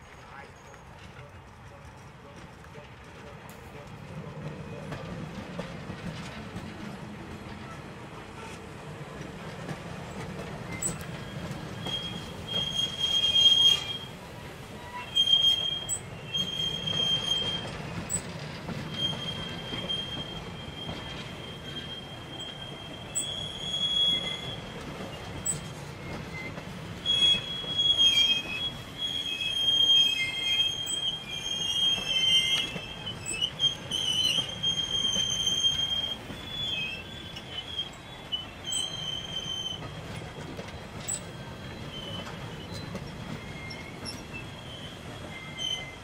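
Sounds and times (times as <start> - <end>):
low train rumble: 0.0 - 46.0
train wheels squealing: 3.7 - 46.0.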